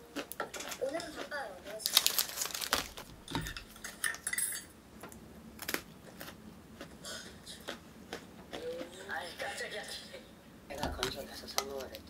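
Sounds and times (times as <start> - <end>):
plastic snack wrapper crackling: 0.2 - 3.1.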